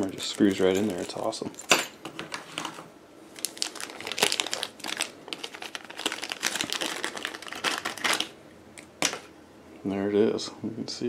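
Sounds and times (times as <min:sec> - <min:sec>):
plastic bag crinkling: 0:00.0 - 0:01.7, 0:03.3 - 0:08.4.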